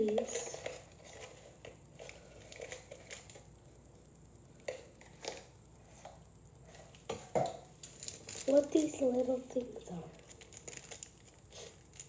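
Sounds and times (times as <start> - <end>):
plastic crinkling and rustling: 0.0 - 3.5, 6.7 - 12.0.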